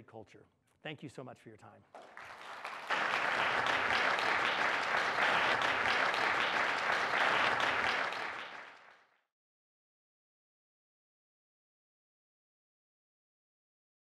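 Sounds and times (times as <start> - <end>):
audience applauding: 2.0 - 9.1.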